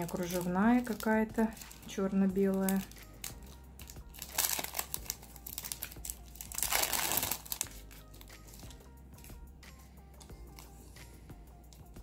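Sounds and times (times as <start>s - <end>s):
plastic packet and foil crinkling: 0.0s - 9.3s.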